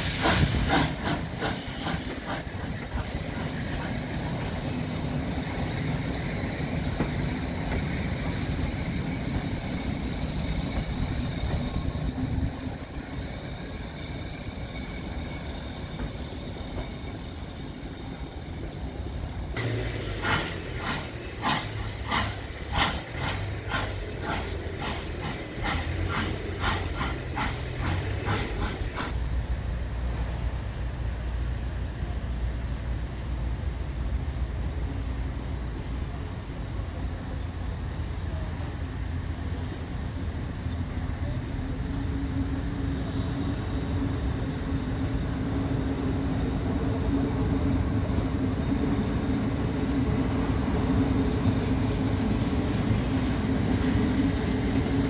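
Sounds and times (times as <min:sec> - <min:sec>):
regular knocking of train wheels: 0:00.0 - 0:30.4
steam train rumbling: 0:00.0 - 0:55.0.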